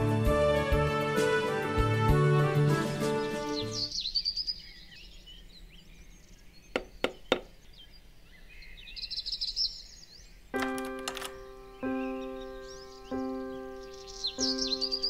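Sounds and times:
music: 0.0s - 3.9s, 10.6s - 15.0s
birds chirping: 2.9s - 15.0s.

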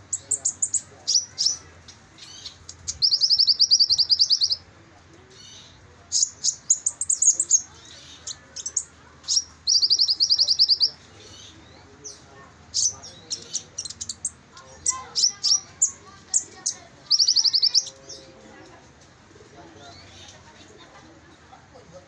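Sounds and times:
bird chirps and twitters: 0.0s - 4.6s, 5.3s - 18.2s.

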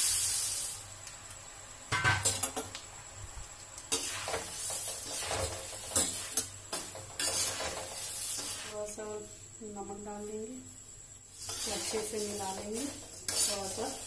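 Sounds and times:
puffed rice sizzling in oil: 0.0s - 14.0s
metal spatula scraping pan: 3.9s - 8.8s, 11.3s - 14.0s.

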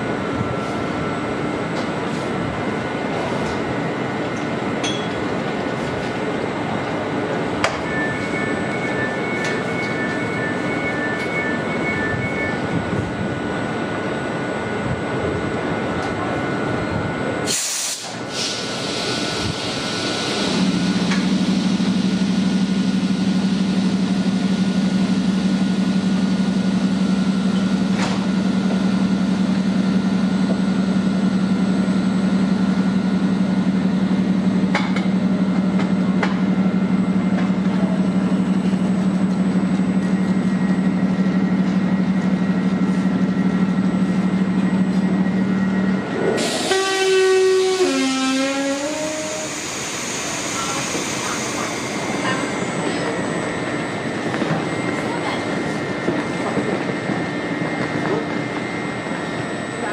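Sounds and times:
locomotive machinery humming: 0.0s - 59.9s
air hiss blast: 17.5s - 20.0s.

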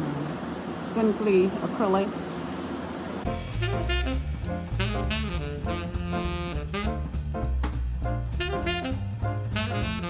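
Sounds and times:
instrumental music with beat: 3.2s - 10.0s.

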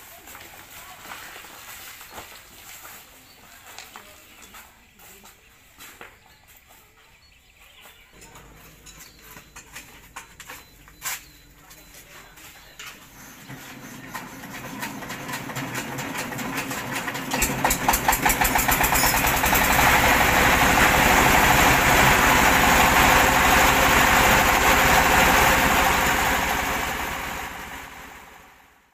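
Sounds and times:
diesel engine chugging: 12.8s - 28.8s
mill rushing noise: 13.1s - 28.5s.

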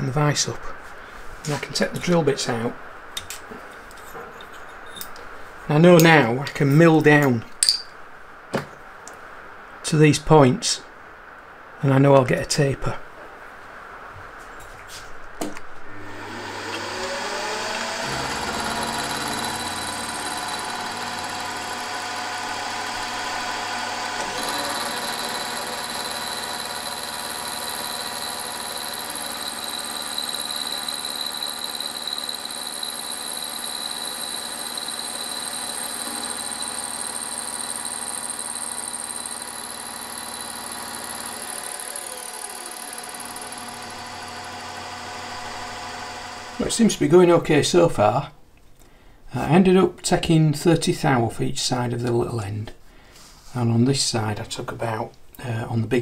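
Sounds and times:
end mill cutting metal: 16.0s - 46.7s
milling machine spindle running: 16.0s - 46.7s.

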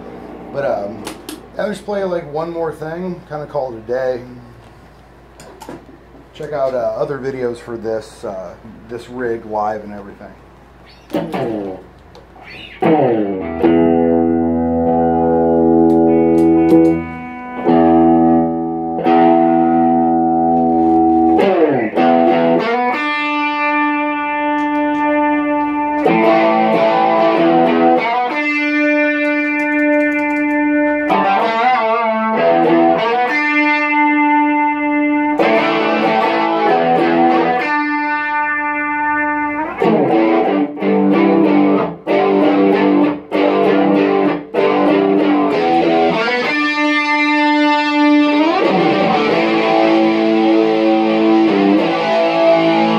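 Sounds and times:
electric guitar lead: 10.7s - 52.9s.

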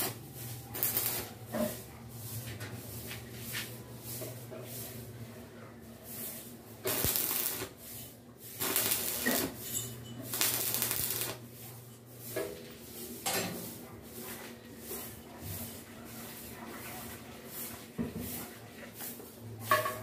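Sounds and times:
arc welding crackle and hiss: 0.0s - 5.2s, 6.0s - 16.4s.

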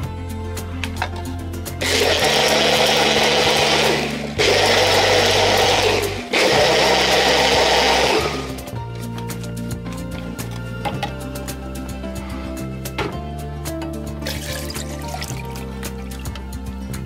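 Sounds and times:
background music with beat: 0.0s - 17.0s
blender motor running: 1.8s - 8.7s.

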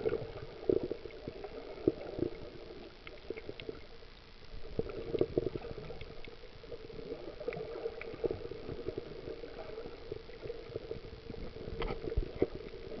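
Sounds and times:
soft underwater clicks and knocks: 0.0s - 3.9s, 4.6s - 6.8s, 10.3s - 13.0s
muffled underwater rumble: 0.0s - 13.0s.

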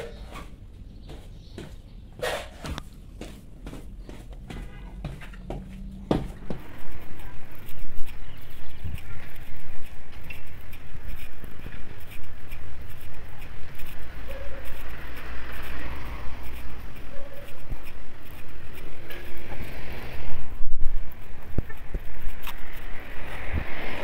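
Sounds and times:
road traffic rumble: 0.0s - 24.0s
footsteps and handling clicks: 0.4s - 19.7s, 20.7s - 23.8s
wind buffeting microphone: 5.8s - 24.0s.

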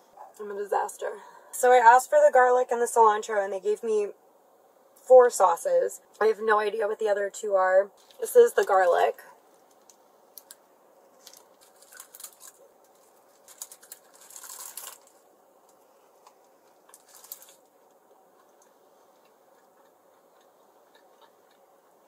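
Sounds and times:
food packaging crinkling: 8.0s - 21.6s.

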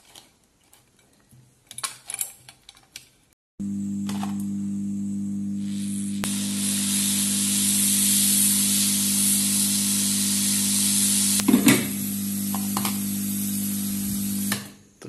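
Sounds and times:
rework station hum: 3.6s - 14.8s
hot air gun hissing: 5.6s - 14.8s.

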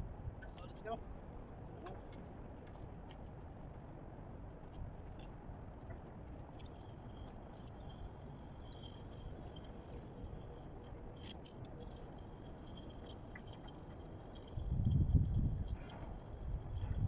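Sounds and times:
small high ticks: 4.6s - 17.0s.

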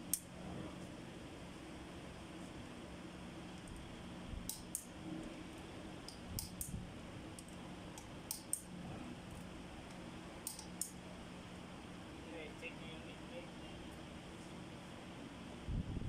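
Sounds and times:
low hum: 0.0s - 16.0s
metallic hand tool clicks: 4.5s - 4.9s, 8.3s - 8.7s, 10.4s - 11.0s.

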